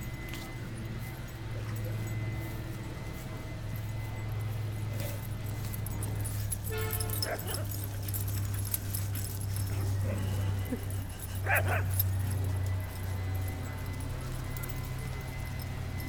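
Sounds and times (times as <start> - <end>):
steady low hum: 0.0 - 16.0
dog yelping: 6.7 - 12.3
dog barking: 6.7 - 12.4.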